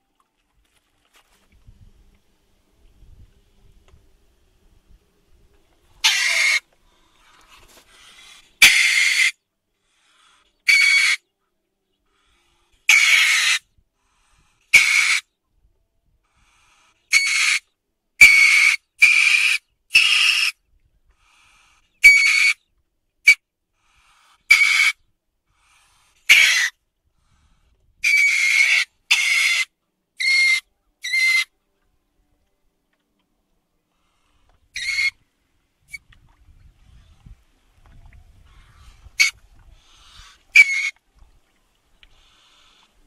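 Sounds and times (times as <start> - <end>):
weasel high-pitched calls: 6.0 - 6.6, 8.1 - 9.4, 10.6 - 11.2, 12.9 - 13.6, 14.7 - 15.3, 17.1 - 20.6, 22.0 - 22.6, 24.5 - 25.0, 26.3 - 26.8, 28.0 - 31.5, 34.7 - 35.2, 38.5 - 41.0.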